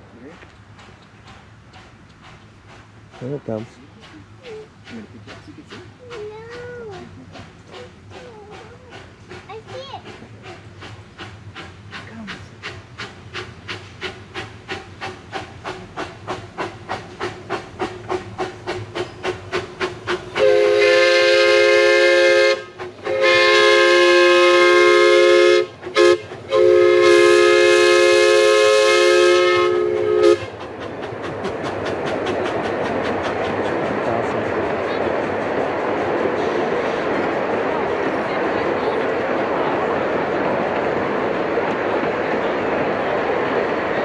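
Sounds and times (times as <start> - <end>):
steam locomotive chuffing: 0.1 - 44.0
train rumbling over wooden trestle: 0.2 - 44.0
steam whistle blasts: 20.4 - 30.5.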